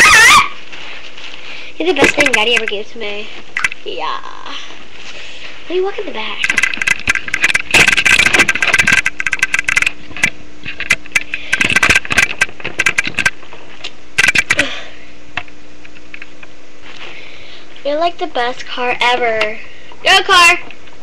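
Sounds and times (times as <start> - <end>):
plastic toys clicking and rattling: 2.0 - 2.8, 6.4 - 13.4, 14.2 - 14.6.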